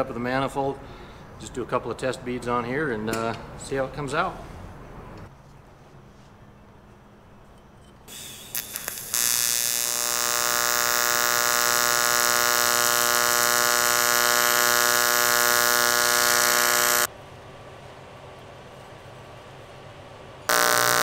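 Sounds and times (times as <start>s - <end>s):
welding arc buzzing with hiss: 8.1s - 17.1s, 20.5s - 21.0s
welding arc crackling clicks: 8.1s - 17.1s, 20.5s - 21.0s.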